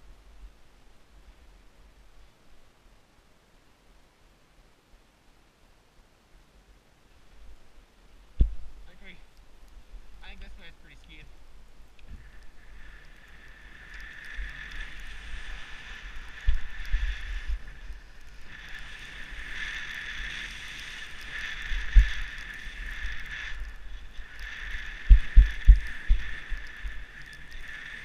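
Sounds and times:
thumps on camera microphone: 0:08.4 - 0:08.7
skis scraping over snow: 0:12.1 - 0:28.0.

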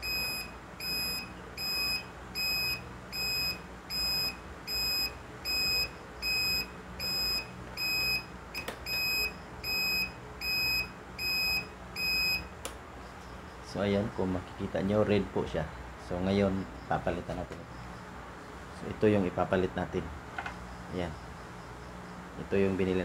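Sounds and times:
turn-signal buzzer beeping: 0:00.0 - 0:12.5.

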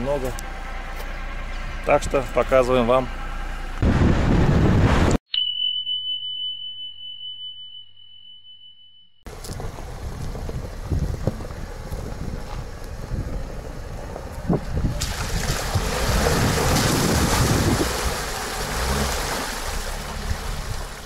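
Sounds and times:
car engine low rumble: 0:00.0 - 0:05.1, 0:09.3 - 0:21.0
wind on microphone: 0:03.8 - 0:05.2, 0:09.3 - 0:18.3
water and mud splashing: 0:09.3 - 0:21.0.

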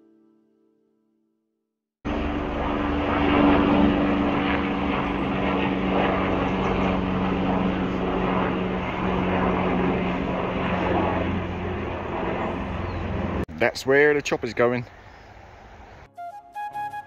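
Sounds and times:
helicopter engine and rotor drone: 0:02.1 - 0:13.5.

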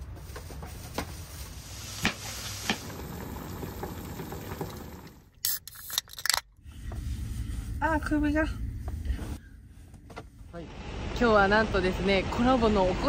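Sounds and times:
drink cans opening with fizz: 0:05.3 - 0:06.4.

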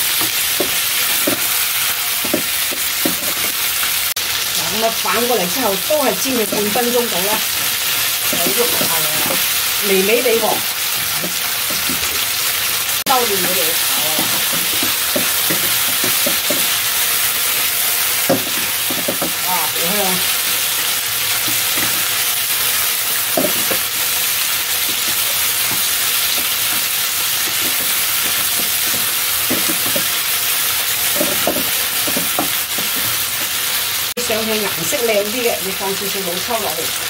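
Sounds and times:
chicken sizzling in hot oil: 0:00.0 - 0:37.0
wooden spatula scraping pan: 0:13.3 - 0:17.7, 0:24.8 - 0:30.2.

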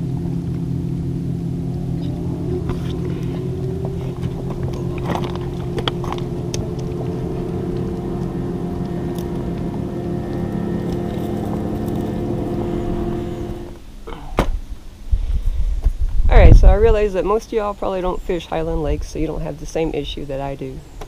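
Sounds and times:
motor droning: 0:00.0 - 0:14.1.

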